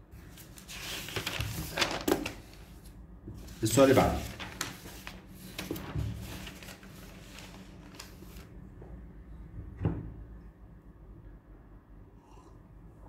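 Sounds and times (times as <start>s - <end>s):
paper rustling: 0.2s - 8.5s.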